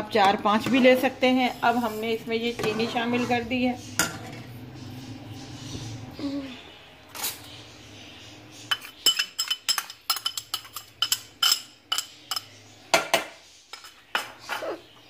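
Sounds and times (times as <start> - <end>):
metal spoon scraping pot: 0.5 - 6.0, 8.6 - 12.7.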